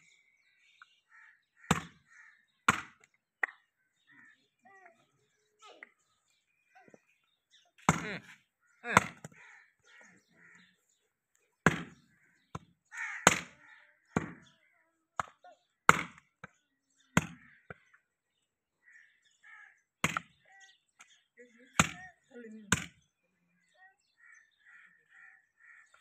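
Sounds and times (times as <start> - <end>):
cleaver chopping on wooden block: 1.7 - 2.0, 2.7 - 3.6, 9.0 - 9.4, 11.7 - 13.6, 14.2 - 14.5, 15.2 - 16.3, 17.2 - 17.4, 20.0 - 20.4, 21.8 - 22.1.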